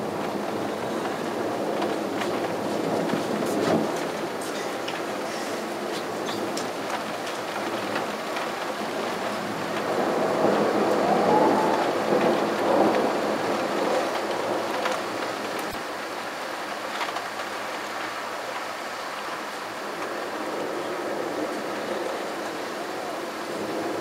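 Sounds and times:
thunder rolling: 0.0 - 15.8
rain falling steadily: 0.0 - 24.0.

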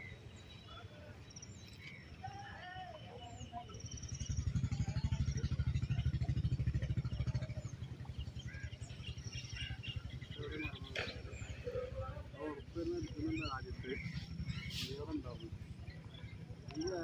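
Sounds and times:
birds chirping: 0.0 - 17.0
small engine pulsing: 3.8 - 17.0.

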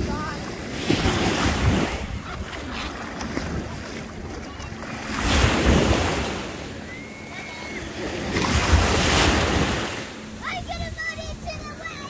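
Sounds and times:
wind buffeting microphone: 0.0 - 6.4
small waves washing in: 0.0 - 12.0.

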